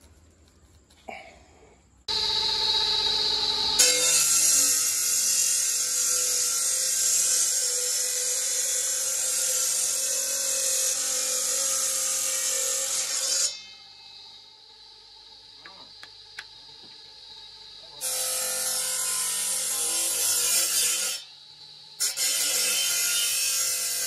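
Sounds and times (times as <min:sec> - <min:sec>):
motor whine: 0:02.1 - 0:05.2
stone-cutting disc grinding: 0:02.1 - 0:13.9, 0:18.0 - 0:21.3, 0:22.0 - 0:24.0.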